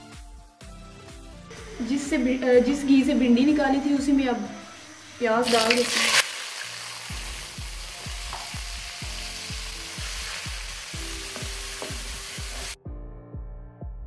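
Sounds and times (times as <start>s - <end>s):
background music beat: 0.0s - 3.4s, 6.3s - 14.0s
onions sizzling in hot oil: 4.7s - 12.8s.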